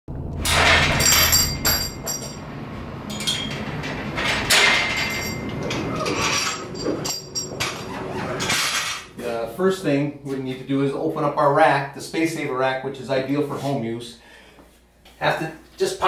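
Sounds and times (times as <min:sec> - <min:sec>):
metallic clanks and clinks: 0:00.4 - 0:02.5, 0:03.1 - 0:09.1.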